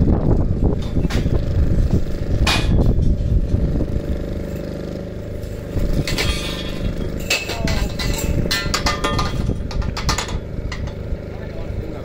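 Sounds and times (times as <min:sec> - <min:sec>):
engine running steadily: 0:00.0 - 0:12.0
sharp knocks: 0:02.4 - 0:03.0.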